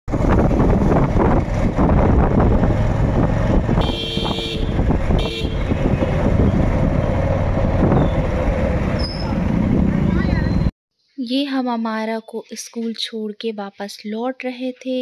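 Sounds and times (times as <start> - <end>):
low wind rumble: 0.1 - 10.7
road traffic: 0.1 - 10.7
vehicle horn honking: 3.8 - 5.8.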